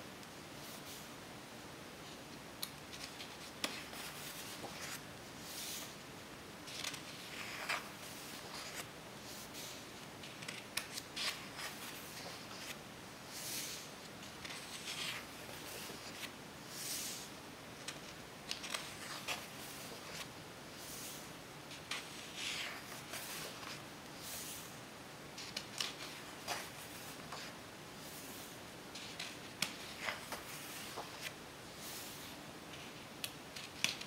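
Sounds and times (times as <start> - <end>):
pages turning: 2.9 - 5.9, 6.7 - 12.8, 13.4 - 16.3, 17.8 - 24.7, 25.4 - 34.0.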